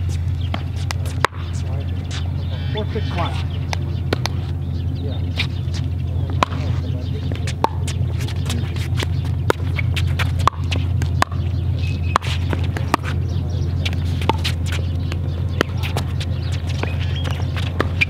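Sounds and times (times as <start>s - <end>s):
footsteps on hard court: 0.0s - 2.3s, 5.3s - 18.0s
low hum: 0.0s - 18.0s
paddles hitting plastic ball: 7.4s - 11.4s.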